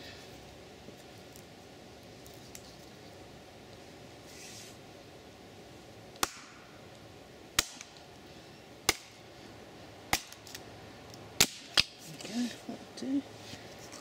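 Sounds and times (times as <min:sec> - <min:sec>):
mattock striking wood: 0:06.2 - 0:06.6.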